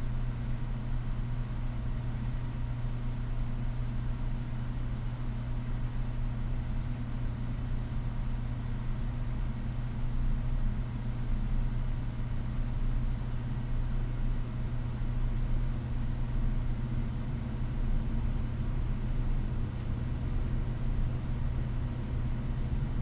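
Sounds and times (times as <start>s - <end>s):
low room hum: 0.0s - 23.0s.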